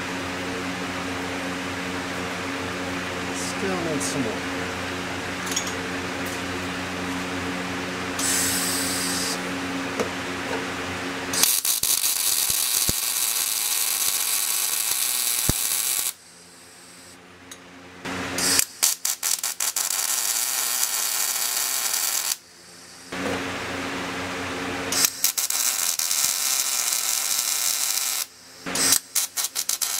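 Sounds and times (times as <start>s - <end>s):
mechanical hum: 0.0s - 29.9s
welder arc crackling: 11.4s - 16.2s, 18.4s - 22.4s, 25.0s - 29.9s.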